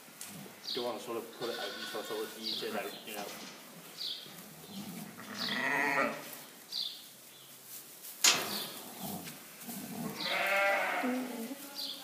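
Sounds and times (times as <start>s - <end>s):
ewe bleating: 1.3s - 2.6s, 5.1s - 6.3s, 10.0s - 12.0s.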